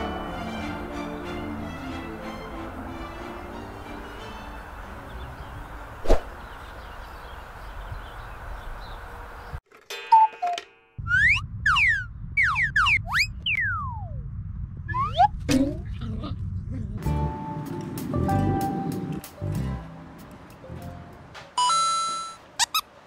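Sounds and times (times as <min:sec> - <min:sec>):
birds singing: 0:04.4 - 0:09.6
low steady rumble: 0:11.1 - 0:18.6.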